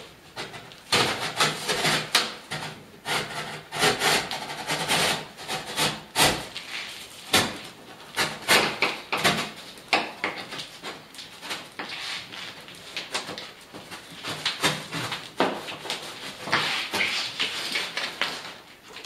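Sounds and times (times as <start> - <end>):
scraping and rubbing cardboard: 0.0 - 18.7.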